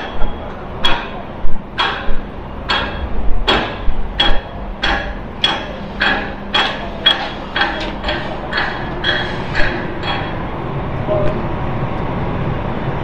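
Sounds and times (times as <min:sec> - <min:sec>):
hammer blows on metal: 0:01.8 - 0:10.5.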